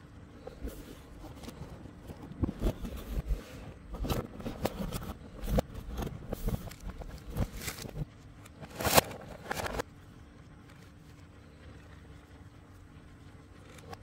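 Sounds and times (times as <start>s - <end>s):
cardboard box being handled: 0.5s - 8.1s
plastic packaging crinkling: 3.9s - 9.8s.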